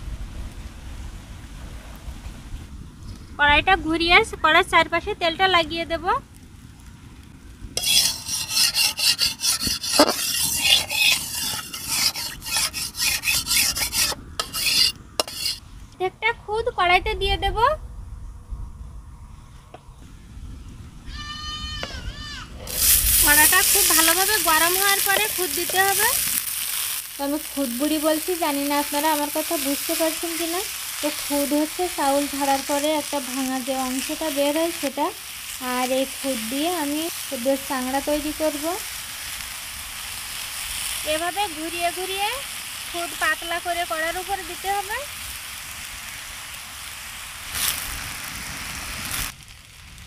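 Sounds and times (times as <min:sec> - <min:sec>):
metal spatula scraping metal pan: 0:07.8 - 0:15.6, 0:23.2 - 0:26.4
rice pressed in iron pan hissing: 0:07.8 - 0:15.6, 0:22.6 - 0:49.4.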